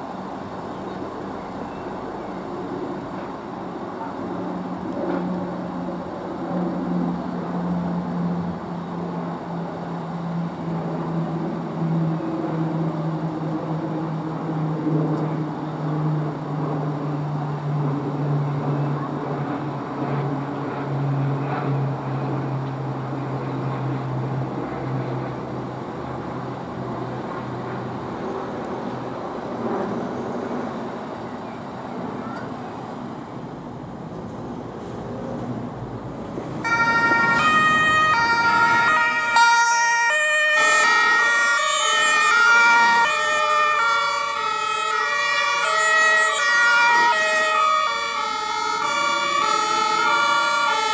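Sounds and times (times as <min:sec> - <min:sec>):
truck diesel engine: 0:32.7 - 0:50.9
two-tone emergency sirens: 0:36.6 - 0:50.9.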